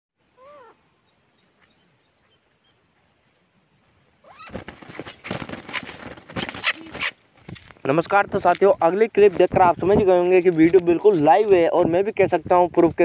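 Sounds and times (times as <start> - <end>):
francolin calling: 0.2 - 3.1.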